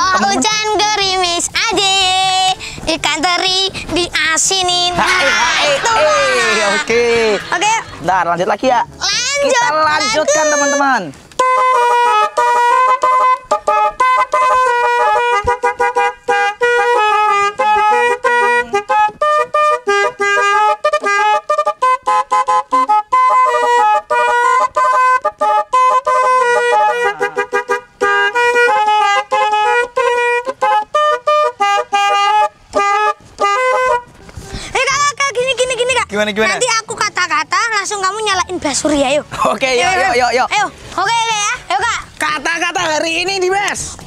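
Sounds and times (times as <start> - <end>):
musical horn playing fast tune: 4.3 - 8.3, 9.2 - 37.2.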